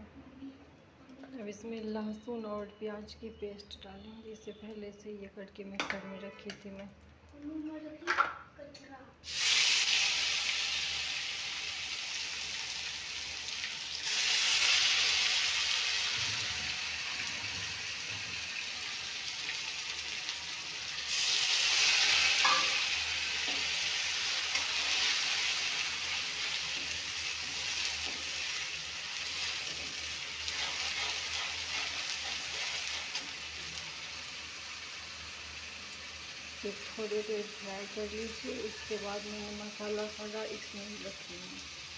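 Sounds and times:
paste sizzling in hot oil: 9.2s - 41.9s.

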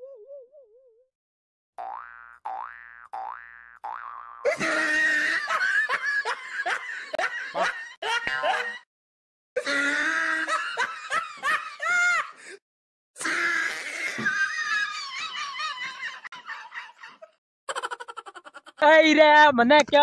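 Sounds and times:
laughter: 4.5s - 8.9s, 10.1s - 12.4s, 14.1s - 18.8s.

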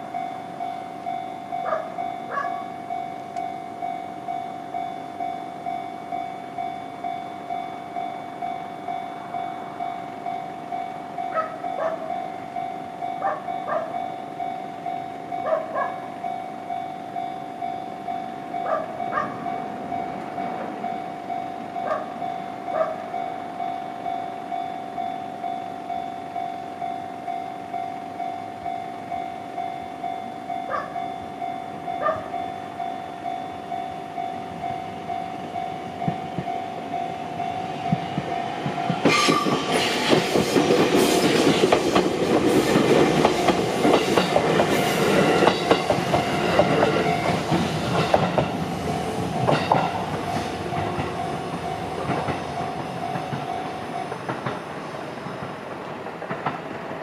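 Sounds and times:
railway crossing alarm clanging: 0.0s - 57.0s
train wheels clattering over rail joints: 37.9s - 57.0s.

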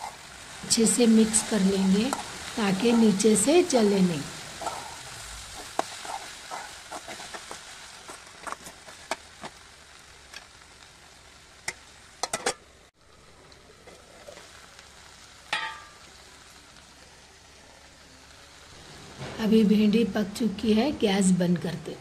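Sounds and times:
okra sizzling in oil: 0.0s - 22.0s
spatula scraping a pan: 5.6s - 9.2s.

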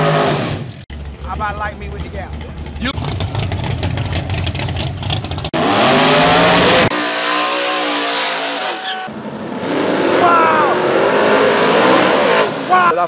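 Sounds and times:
drag car engine at high revs: 0.0s - 13.0s
engine revving up: 0.0s - 13.0s
low crackling engine: 0.9s - 5.6s.

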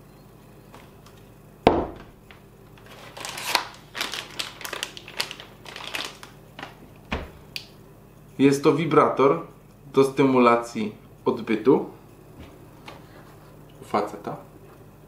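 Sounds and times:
foil packet crinkling: 2.2s - 7.0s.

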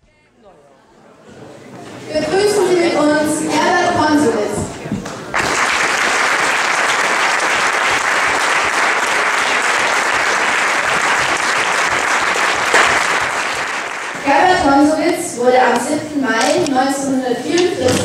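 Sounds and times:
audience applauding: 5.0s - 14.3s.

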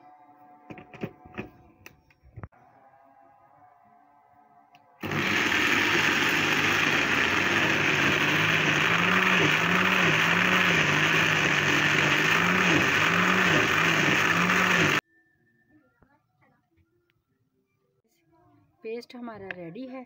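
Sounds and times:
blender motor grinding: 5.0s - 15.0s.

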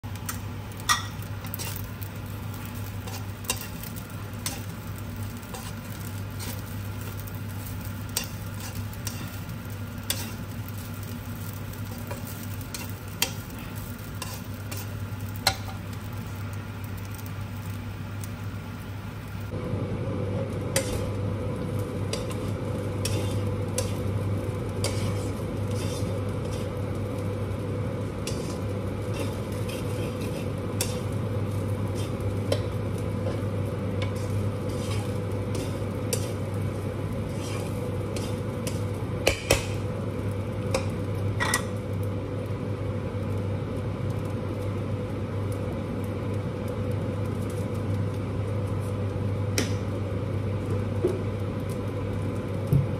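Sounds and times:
rice sizzling in a wok: 0.0s - 52.9s
steady mechanical hum: 0.0s - 52.9s
spatula scraping a pan: 0.8s - 15.8s, 20.8s - 21.1s, 22.0s - 26.8s, 28.1s - 36.5s, 37.1s - 38.9s.

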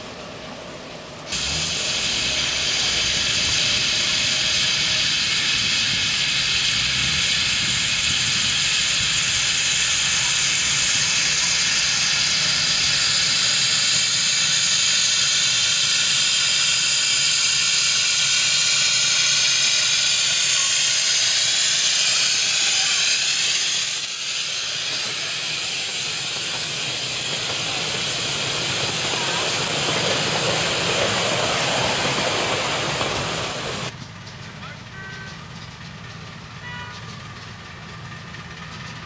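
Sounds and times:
steam locomotive hissing: 0.0s - 39.0s
high wheel squeak: 17.1s - 39.0s.

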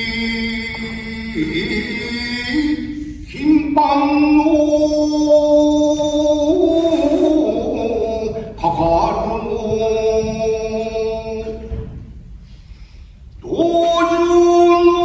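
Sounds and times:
breath: 6.7s - 7.4s, 12.4s - 13.3s.

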